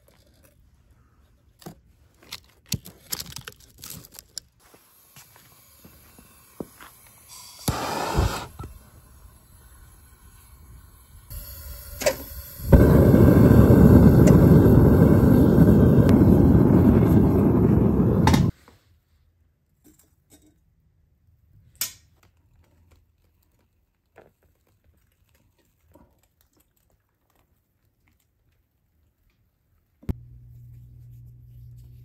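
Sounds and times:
furnace burner roaring: 7.6 - 18.5.

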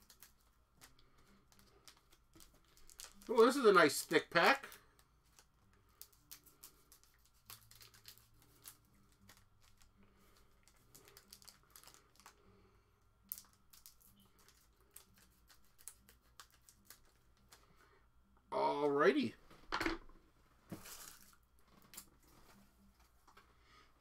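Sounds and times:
foil packs crinkling: 0.0 - 12.4, 20.7 - 22.0.

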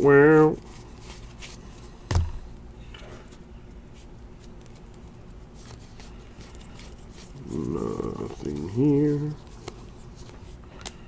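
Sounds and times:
trading cards clicking and rustling: 4.4 - 11.0.

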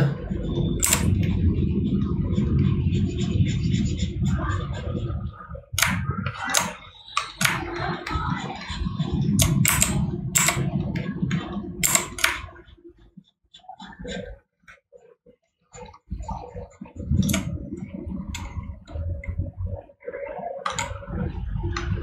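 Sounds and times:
computer mouse and keyboard clicks: 0.0 - 2.0, 5.8 - 12.6, 15.8 - 19.8, 20.6 - 22.0
low steady hum: 0.0 - 14.3, 15.8 - 22.0.

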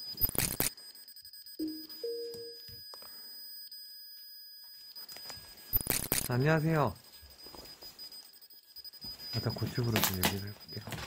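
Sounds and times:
faint high electronic whine: 0.0 - 11.0
electronic two-note chime: 1.6 - 2.6.

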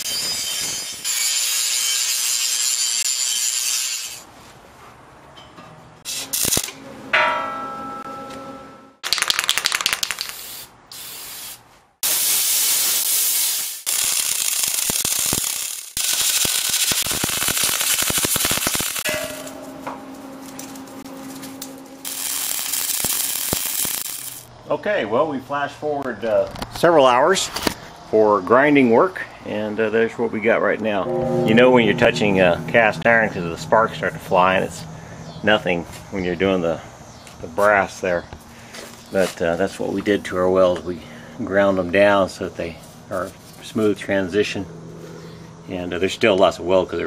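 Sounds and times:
steel plate being cut: 0.0 - 4.2
welding arc crackle: 6.1 - 6.8, 9.0 - 11.4, 12.0 - 19.2, 21.7 - 24.5.

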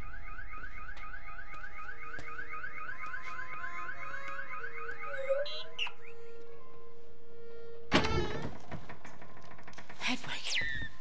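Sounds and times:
car alarm chirps: 0.1 - 6.3.

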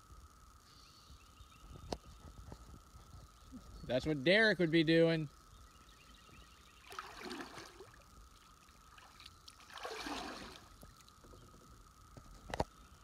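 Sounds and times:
paddle splashing in water: 9.0 - 10.7.

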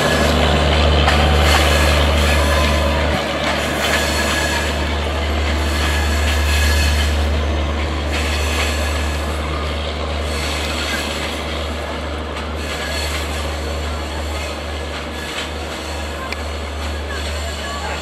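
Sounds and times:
train rumbling: 0.0 - 18.0
wheels on track: 0.0 - 18.0.

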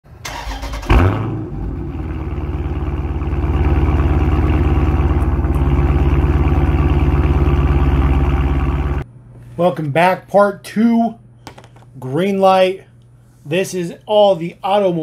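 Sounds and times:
car engine cranking: 0.2 - 1.3, 3.2 - 9.0
car engine idling: 0.3 - 9.0
car engine revving: 0.3 - 9.0.

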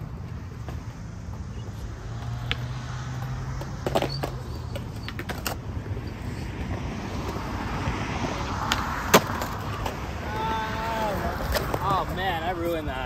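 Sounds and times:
skateboard wheels rolling on concrete: 0.0 - 13.0
skateboard clacks: 3.6 - 5.7, 8.6 - 12.2.

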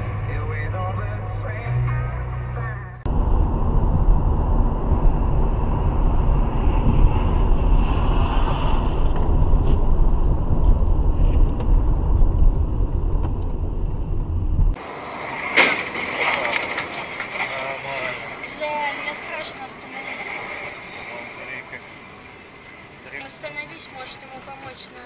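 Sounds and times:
car road and engine rumble: 0.0 - 25.0.

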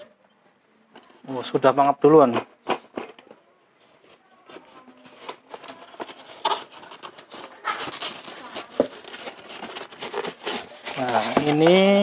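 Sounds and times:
cardboard and foam rustling: 3.8 - 12.0.

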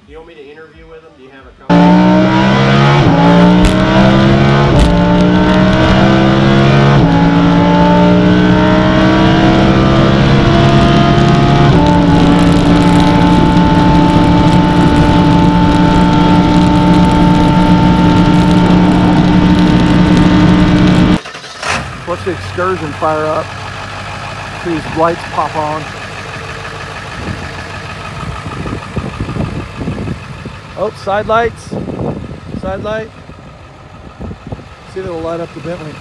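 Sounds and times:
steady cruising drone inside car: 1.7 - 21.2
car engine accelerating through gears: 1.7 - 31.2.

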